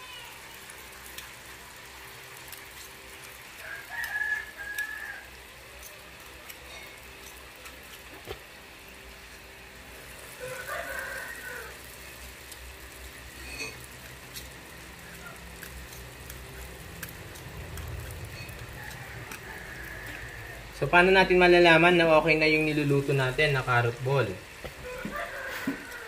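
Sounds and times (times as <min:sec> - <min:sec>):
food deep-frying in hot oil: 0:00.0 - 0:26.0
rooster crowing: 0:03.6 - 0:05.5, 0:10.2 - 0:12.2, 0:18.4 - 0:21.2, 0:24.6 - 0:26.0.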